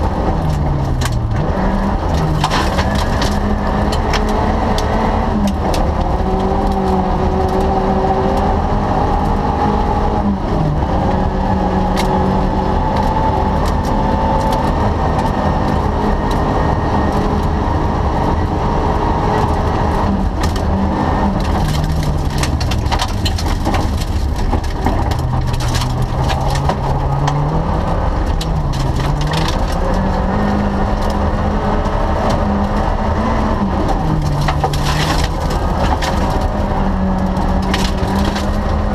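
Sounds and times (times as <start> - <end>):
gravel clattering on underbody: 0.0 - 8.6, 19.4 - 32.8, 33.5 - 38.9
rally car engine revving: 0.0 - 38.9.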